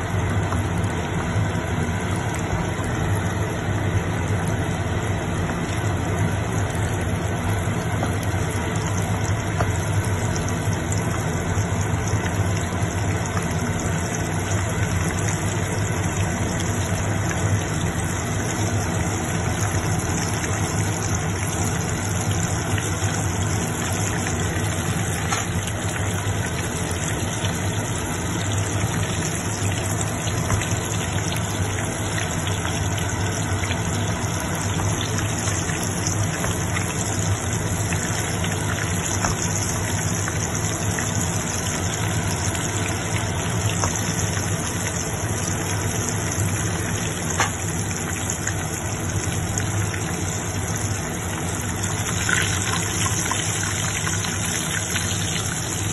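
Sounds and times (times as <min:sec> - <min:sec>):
meat deep-frying in hot oil: 0:00.0 - 0:55.9.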